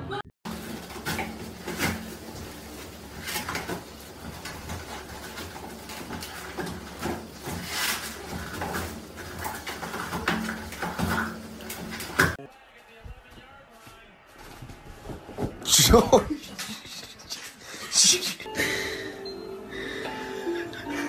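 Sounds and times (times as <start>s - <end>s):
toilet paper rustling and tearing: 0.5s - 12.4s.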